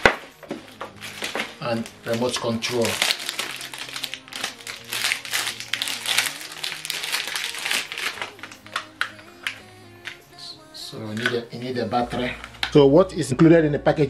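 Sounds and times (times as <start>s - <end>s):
plastic bag crinkling: 0.0s - 10.2s
soft background music: 0.0s - 14.0s.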